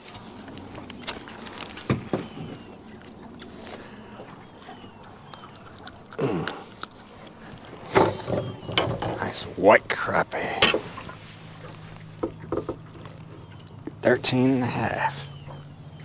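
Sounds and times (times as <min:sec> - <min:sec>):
clicks and knocks on a boat: 0:07.6 - 0:09.4, 0:10.6 - 0:11.2, 0:12.2 - 0:14.1.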